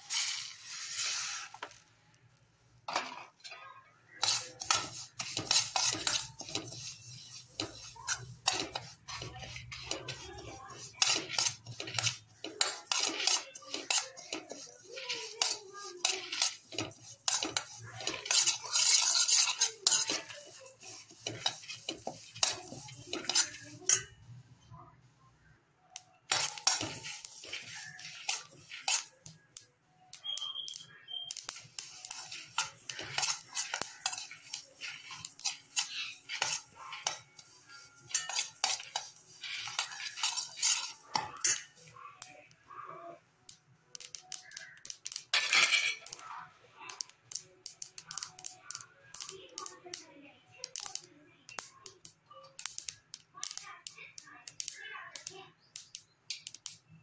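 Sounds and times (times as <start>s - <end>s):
metal spoon scraping a pan: 0.0s - 1.8s, 2.9s - 24.3s, 25.9s - 42.9s, 43.5s - 50.0s, 50.6s - 57.0s.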